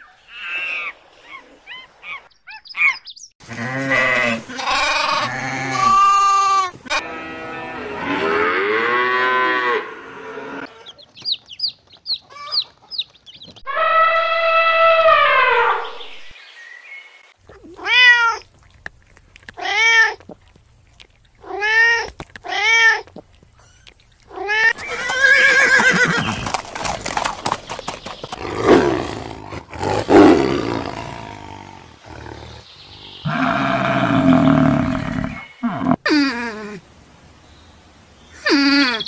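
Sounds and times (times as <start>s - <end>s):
horse whinnying and snorting: 24.4s - 32.4s, 33.2s - 36.1s.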